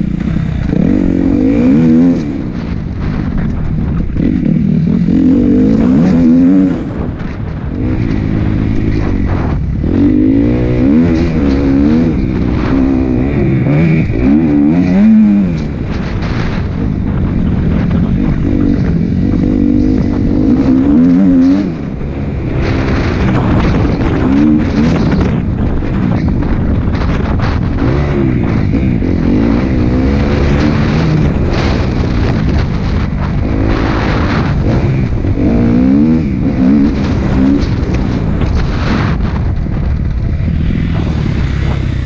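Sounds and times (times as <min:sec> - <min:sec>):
motocross bike engine revving: 0:00.0 - 0:42.0.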